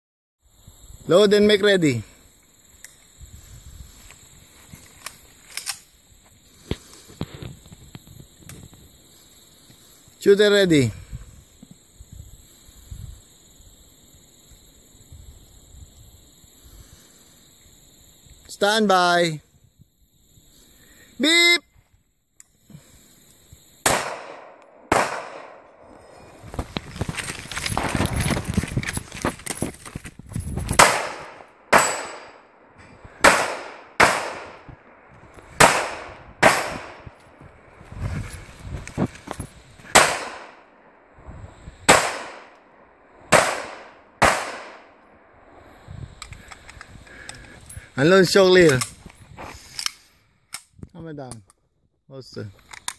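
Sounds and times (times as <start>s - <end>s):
high-pitched insect hiss: 0.4s - 52.9s
wind bumps on microphone: 3.2s - 4.9s, 10.9s - 13.3s, 26.2s - 31.3s, 34.5s - 40.0s, 41.2s - 42.0s, 45.4s - 49.7s
pistol shots with echo: 23.8s - 25.7s, 30.8s - 32.4s, 33.2s - 34.7s, 35.6s - 37.0s, 39.9s - 40.6s, 41.9s - 42.5s, 43.3s - 44.9s
faint footsteps: 26.0s - 30.8s, 37.0s - 39.9s.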